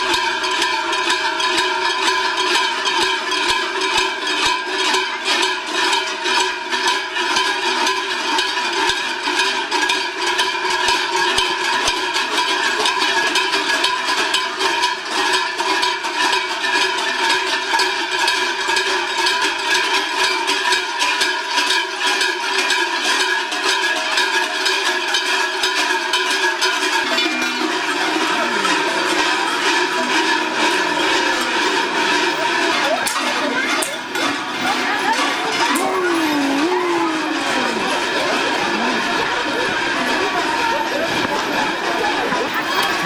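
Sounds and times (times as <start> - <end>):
large cowbells clanging: 0.0 - 43.0.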